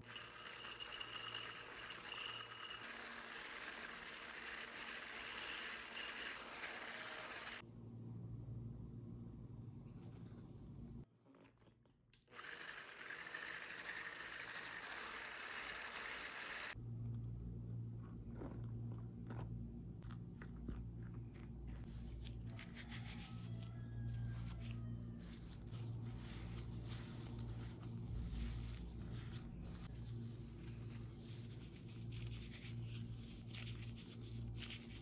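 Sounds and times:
electric hand mixer whirring: 0.0 - 7.6, 12.3 - 16.8
low steady hum: 7.6 - 11.1, 16.8 - 22.7, 23.8 - 35.0
hands kneading dough: 17.9 - 35.0.

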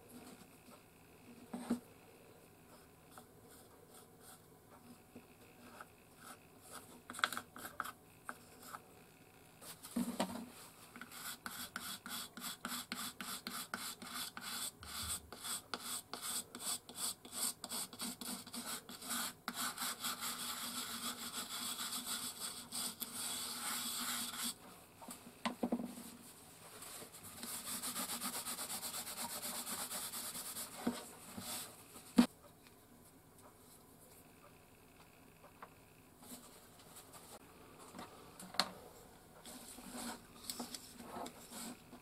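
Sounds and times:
cloth and brush rubbing wood: 26.0 - 31.7.

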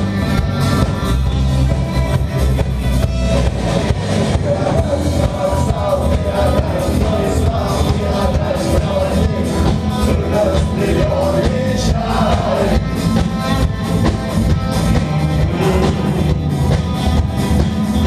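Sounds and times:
drum kit: 0.0 - 18.0
electric guitars: 0.0 - 18.0
person singing: 4.3 - 13.0, 15.1 - 16.7.

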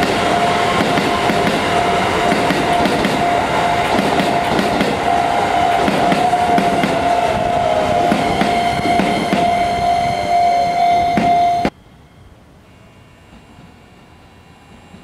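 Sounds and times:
train wheels clicking over rail joints: 0.0 - 9.6
high-pitched train whine: 0.0 - 15.0.

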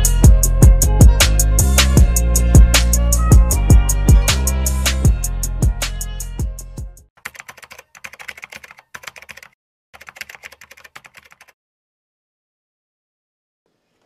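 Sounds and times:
drum-backed music: 0.0 - 6.9
keyboard typing clicks: 7.2 - 11.5.

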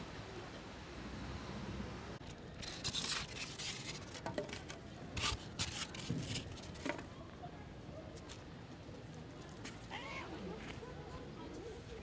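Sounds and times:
foam trays scraping and rustling: 2.5 - 7.1.

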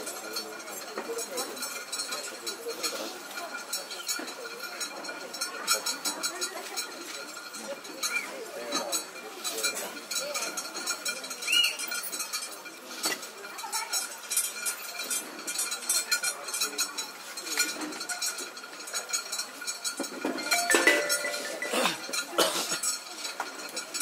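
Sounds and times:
metallic clinking and jingling: 20.4 - 22.3.

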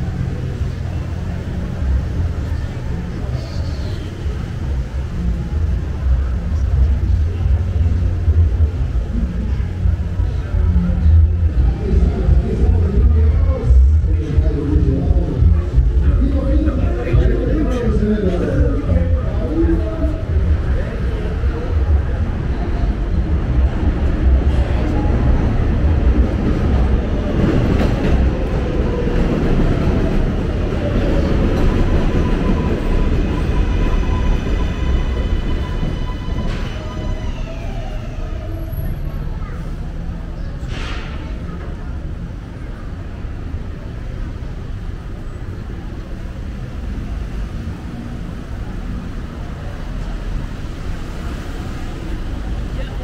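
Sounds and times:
train rumbling overhead: 0.0 - 53.0
wheels whining on rails: 18.6 - 40.6.

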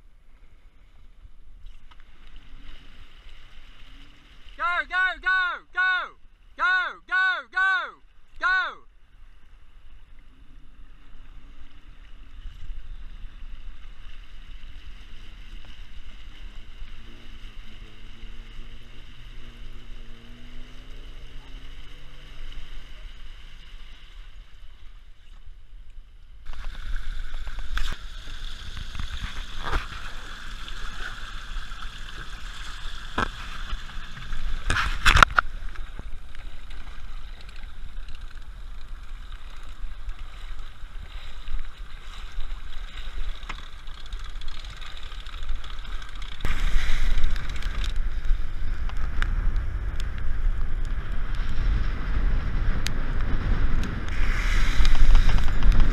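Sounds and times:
engine running low: 15.0 - 23.6.

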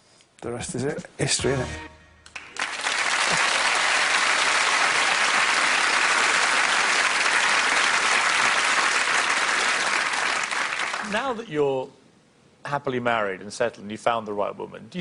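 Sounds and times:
audience applauding: 2.3 - 11.2.

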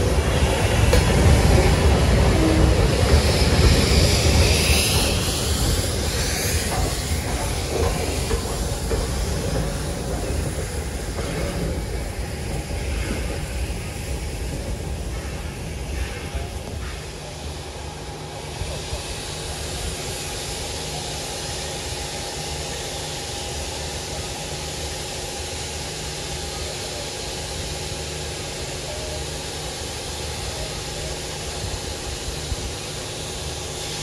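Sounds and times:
steam train rumbling past: 0.0 - 34.0.

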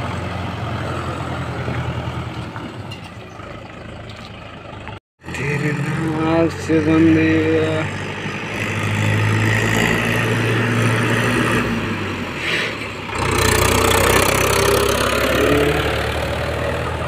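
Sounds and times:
tractor diesel engine running: 0.0 - 9.3.

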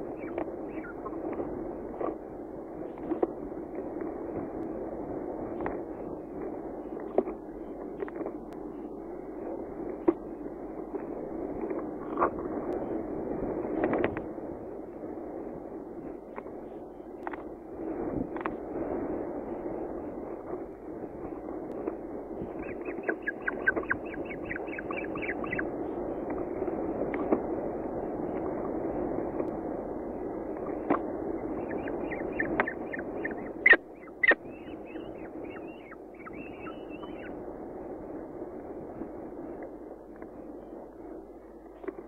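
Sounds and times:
steady low hum: 0.0 - 42.0
chick chirping: 22.6 - 25.6, 31.6 - 37.3.

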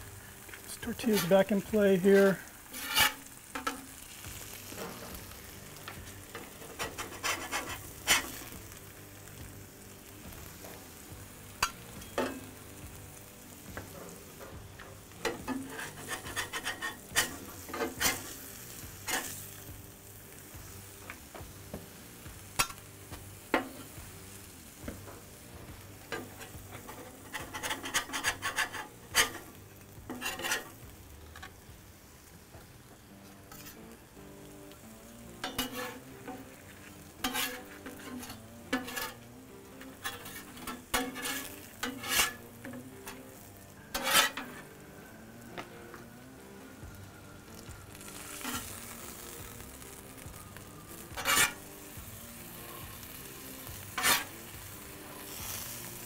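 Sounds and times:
food sizzling on a griddle: 0.0 - 56.0
metal spatula scraping griddle: 0.6 - 8.9, 13.5 - 19.7, 22.4 - 31.6, 33.2 - 34.0, 35.2 - 44.8, 48.0 - 50.0, 50.9 - 56.0.

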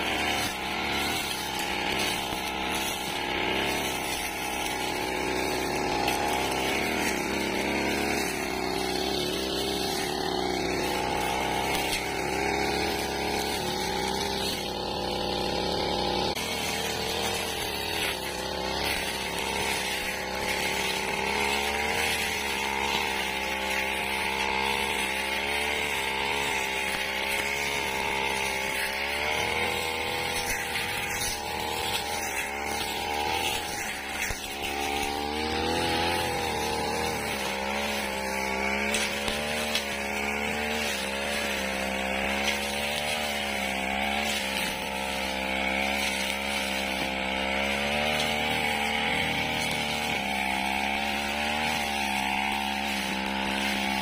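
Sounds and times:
blade cutting dry grass: 0.0 - 54.0
brush cutter engine running: 0.0 - 54.0.

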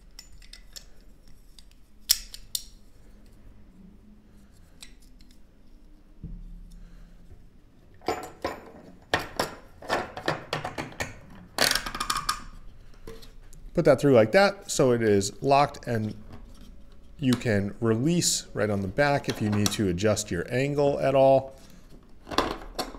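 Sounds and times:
plastic parts clicking and rattling: 0.0 - 2.8.

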